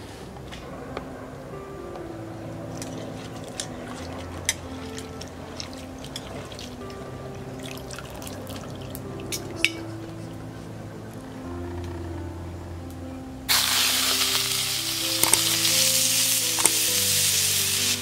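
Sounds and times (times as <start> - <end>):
background music: 0.0 - 18.0
water splashing in a bowl: 2.8 - 6.8.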